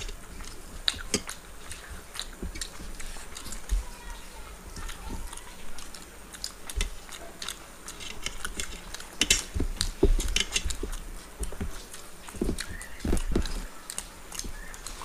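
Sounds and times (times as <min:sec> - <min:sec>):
chewing and mouth sounds: 0:00.0 - 0:15.0
fingers scraping steel plate: 0:07.9 - 0:13.7.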